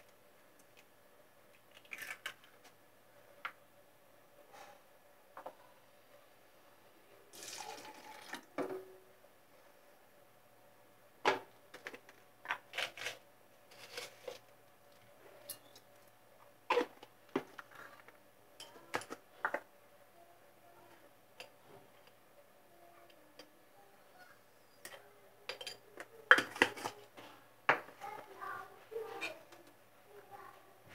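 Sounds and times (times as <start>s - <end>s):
faint steady hum: 0.0s - 30.9s.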